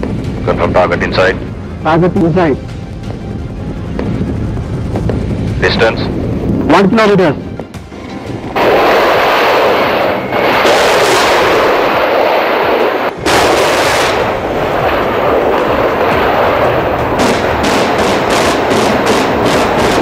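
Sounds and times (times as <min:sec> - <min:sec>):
rapid rocket cracks: 0:08.5 - 0:20.0
rocket launches roaring: 0:08.5 - 0:20.0.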